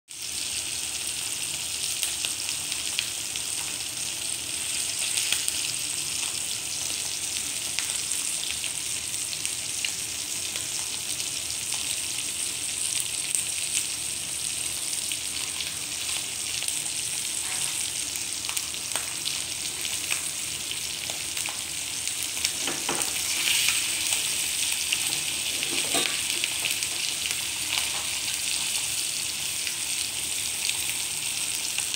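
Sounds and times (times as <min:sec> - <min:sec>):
fish frying in butter: 0:00.1 - 0:31.9.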